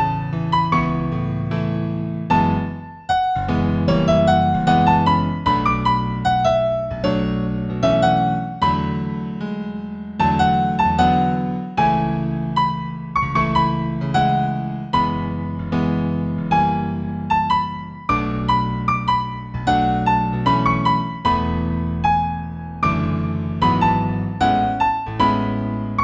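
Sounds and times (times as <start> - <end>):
piano melody: 0.0 - 26.0.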